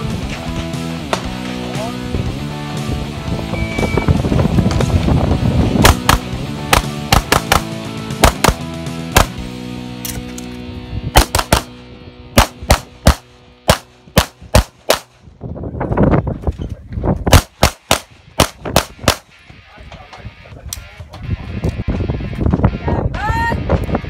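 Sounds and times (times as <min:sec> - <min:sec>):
pistol shots in pairs: 0:05.8 - 0:09.4, 0:11.2 - 0:11.8, 0:12.4 - 0:15.1, 0:17.3 - 0:19.3.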